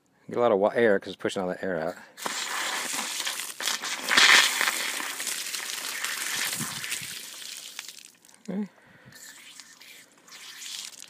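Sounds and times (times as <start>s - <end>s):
water hose bib hissing and spitting: 2.2s - 8.2s, 9.2s - 11.0s.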